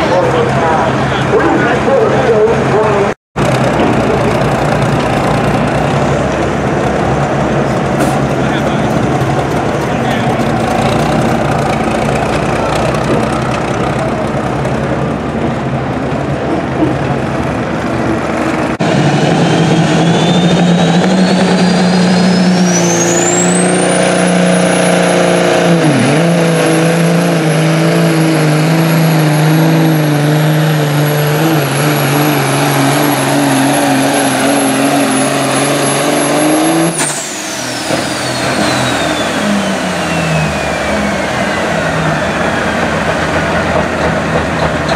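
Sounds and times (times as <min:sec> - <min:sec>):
diesel truck engine droning: 0:00.0 - 0:44.9
turbocharger whistle: 0:18.8 - 0:27.6, 0:32.0 - 0:43.1.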